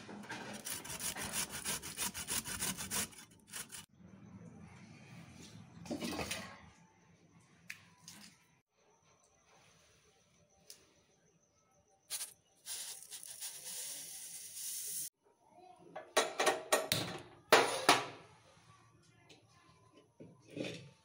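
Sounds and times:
sugar pouring hiss: 12.1 - 15.1.

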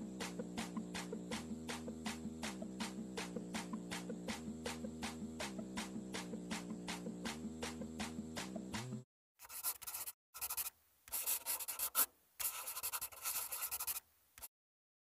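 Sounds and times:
music: 0.0 - 9.1
pen scratching on paper: 9.4 - 14.5.

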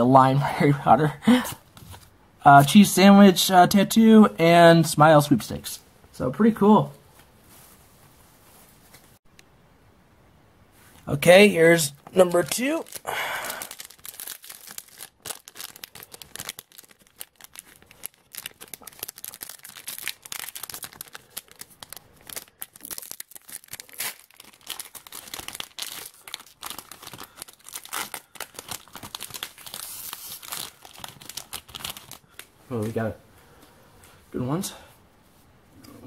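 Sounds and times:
foil wrapper tearing and crinkling: 12.2 - 32.5.

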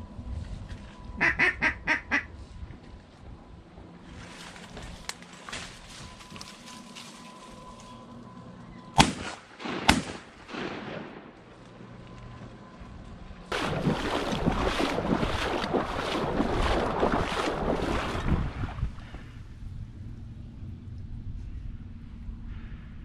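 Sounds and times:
shotgun shots: 9.0 - 11.4.

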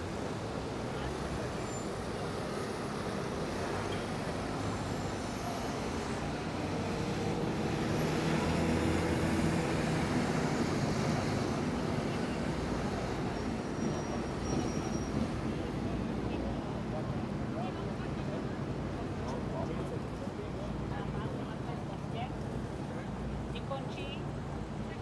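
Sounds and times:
steady road noise: 0.0 - 25.0.

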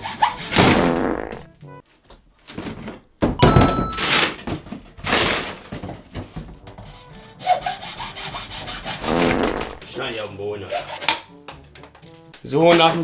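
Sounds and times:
hacksaw cutting plastic pipe: 0.0 - 0.8, 6.8 - 9.8, 10.6 - 11.6.

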